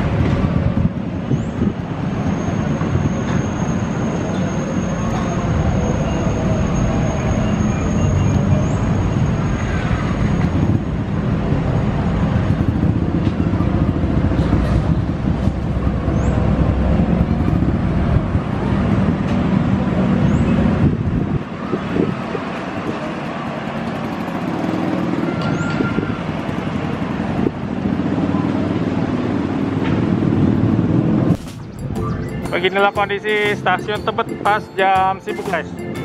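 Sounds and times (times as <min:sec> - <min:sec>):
road traffic: 0:00.0 - 0:36.0
busy station din: 0:01.8 - 0:15.3, 0:31.4 - 0:36.0.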